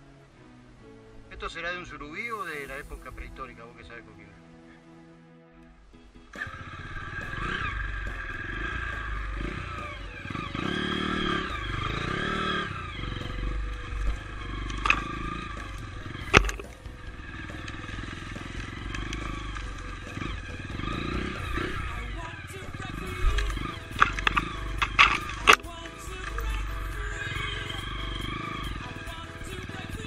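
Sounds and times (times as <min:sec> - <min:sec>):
dirt bike engine revving: 0:02.2 - 0:03.4, 0:06.0 - 0:30.0.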